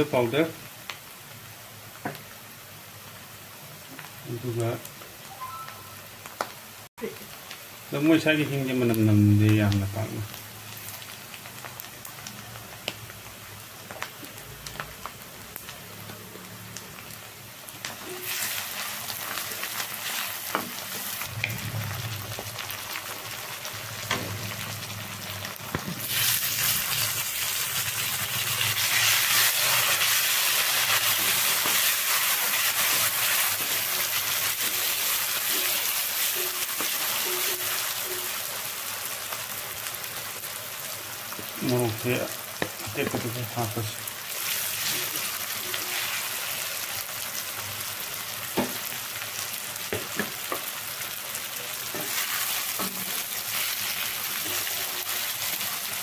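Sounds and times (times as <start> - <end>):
food frying in oil: 0.0 - 56.0.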